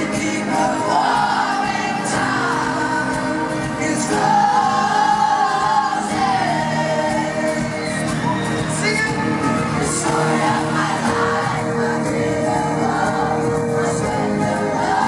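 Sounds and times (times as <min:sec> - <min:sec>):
pop song over sound system: 0:00.0 - 0:15.0.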